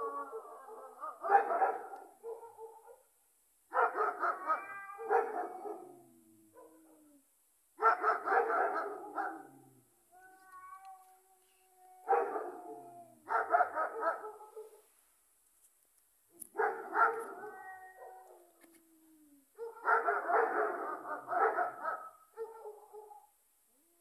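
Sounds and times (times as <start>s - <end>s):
dogs barking: 1.0s - 3.0s, 3.7s - 4.4s, 5.1s - 5.8s, 7.8s - 9.4s, 12.1s - 12.6s, 13.3s - 14.8s, 16.6s - 17.3s, 19.6s - 23.2s.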